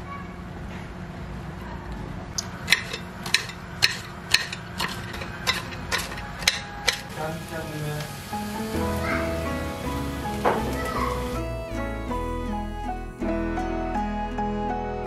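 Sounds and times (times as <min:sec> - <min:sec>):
kitchen utensil clicking: 0:02.4 - 0:07.1.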